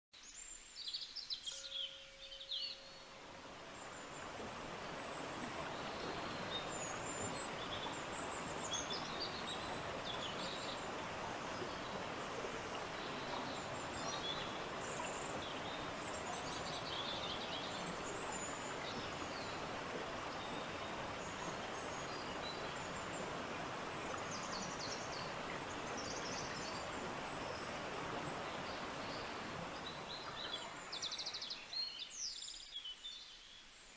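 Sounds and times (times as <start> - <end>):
background hiss: 0.2 - 33.9.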